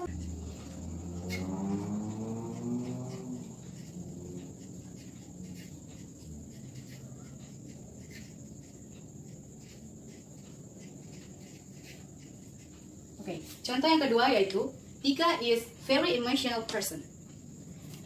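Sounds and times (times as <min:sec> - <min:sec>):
low hum: 0:00.0 - 0:08.0
marker pen scratching on paper: 0:00.0 - 0:14.1.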